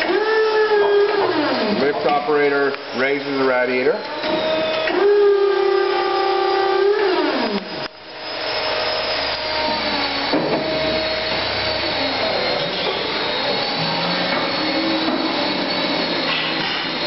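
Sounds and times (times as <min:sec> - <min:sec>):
hydraulic lift motor whining: 0:00.0 - 0:17.0
steady machine hum: 0:07.5 - 0:17.0.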